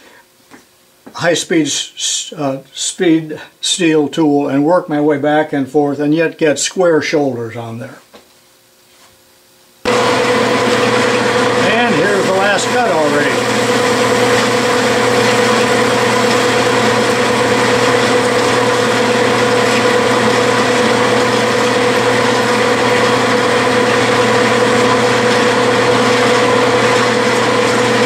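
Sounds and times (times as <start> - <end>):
metal lathe whining drone: 9.9 - 28.0.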